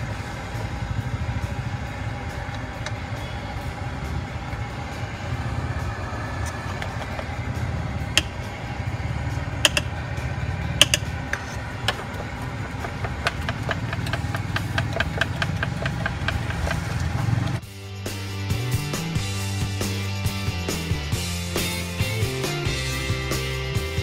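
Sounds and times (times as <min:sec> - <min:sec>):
low rumble: 0:00.0 - 0:17.6.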